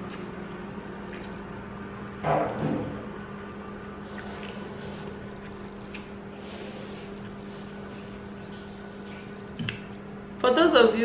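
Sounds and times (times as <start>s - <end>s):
person chewing noodles: 4.0s - 8.2s.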